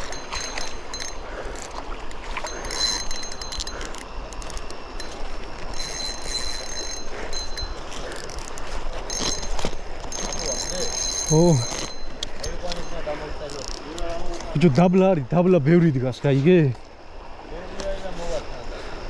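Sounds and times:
river flowing: 0.0 - 13.8
high ringing tone: 0.0 - 18.9.

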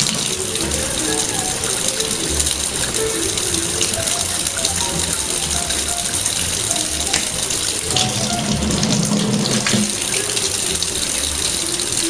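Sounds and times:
faucet running into sink: 0.0 - 12.0
music playing: 0.0 - 12.0.

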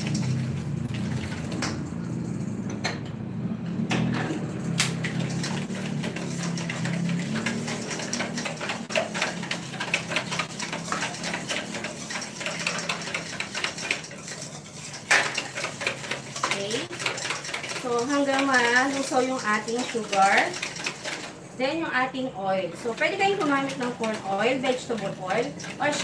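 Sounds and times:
whisk clicking in metal bowl: 4.8 - 21.4, 22.8 - 26.0.

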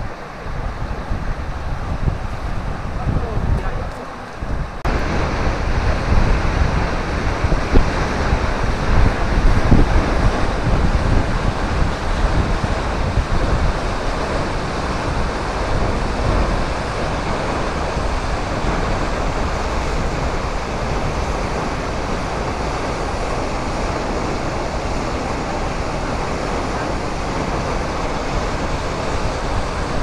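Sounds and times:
waterfall rushing: 0.0 - 30.0
wind gusts on microphone: 0.0 - 30.0.

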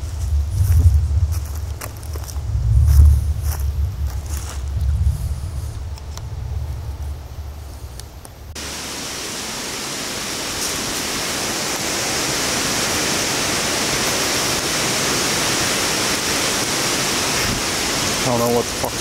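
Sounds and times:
wind rushing: 0.0 - 18.4.

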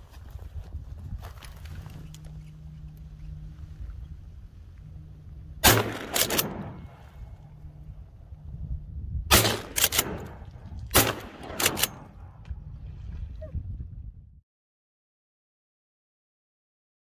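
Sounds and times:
shotgun shots with echo: 5.6 - 7.2, 9.3 - 12.2.

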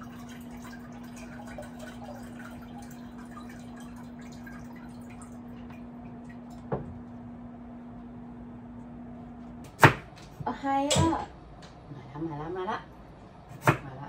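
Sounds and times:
liquid trickling into saucepan: 0.0 - 6.7.

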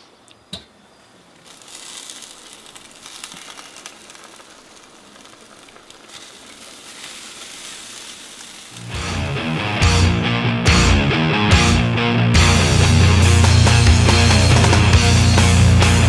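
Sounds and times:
chicken sizzling and crackling: 1.4 - 9.8.

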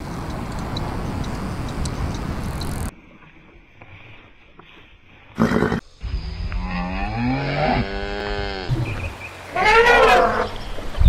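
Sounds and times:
cow mooing: 6.5 - 8.8, 9.5 - 10.5
higher-pitched animal call: 9.5 - 10.6.

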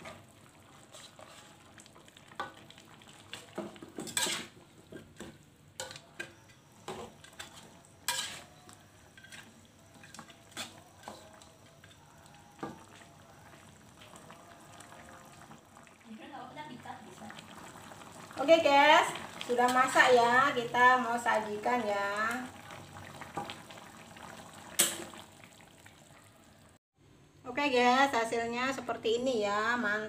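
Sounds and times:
faint broth sizzle: 0.0 - 26.8
metal ladle scraping wok: 0.8 - 1.6, 3.9 - 5.2, 5.8 - 12.0.

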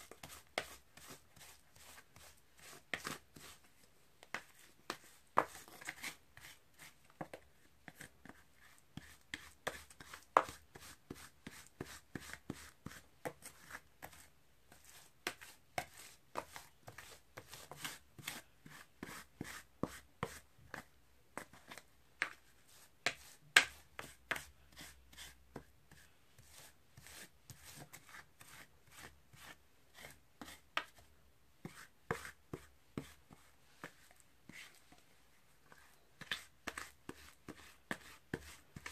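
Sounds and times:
spatulas chopping and scraping on metal pan: 0.0 - 3.6, 23.0 - 34.7, 35.8 - 38.9.

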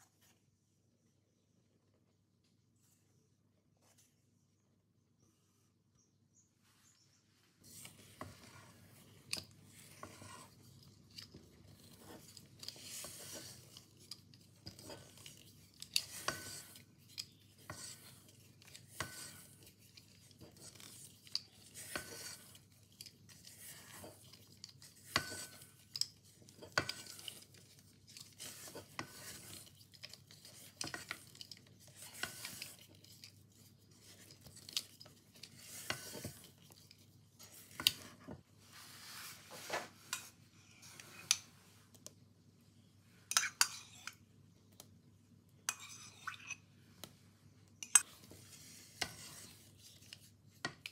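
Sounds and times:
spatula scraping a metal bowl: 7.7 - 36.6, 43.3 - 44.2, 45.7 - 46.6, 47.9 - 50.1.

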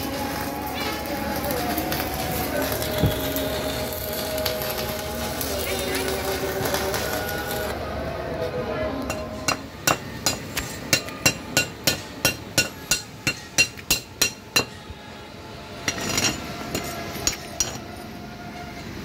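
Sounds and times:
hammer striking steel: 9.1 - 14.8, 15.8 - 17.8.

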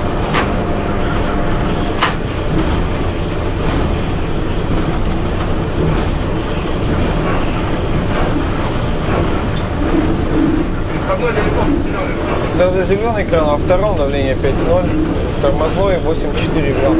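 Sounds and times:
locomotive cab rumble: 0.0 - 16.9
sharp clicks from wheels: 0.0 - 16.9.

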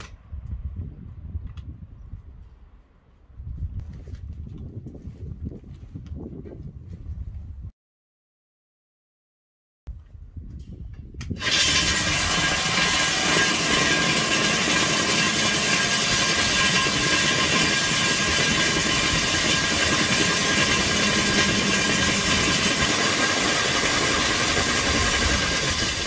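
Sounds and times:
core drill grinding into concrete: 11.4 - 26.0.

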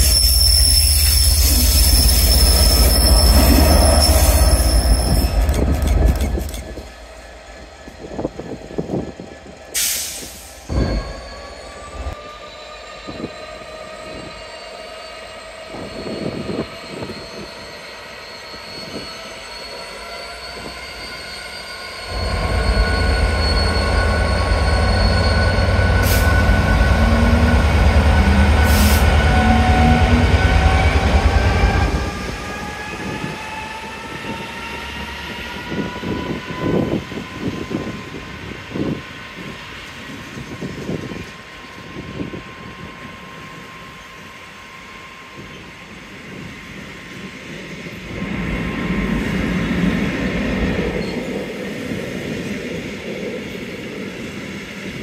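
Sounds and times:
wheel squeal: 0.0 - 7.0, 10.7 - 37.9
diesel locomotive engine: 0.0 - 55.0.

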